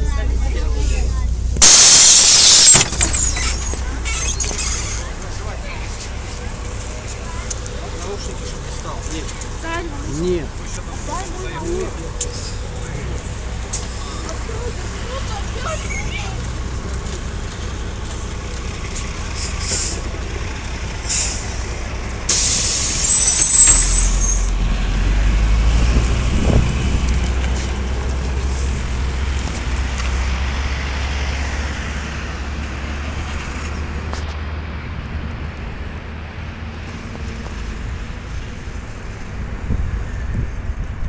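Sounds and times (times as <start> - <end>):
bus diesel engine rumble: 0.0 - 41.0
compressed air hiss: 22.3 - 24.1.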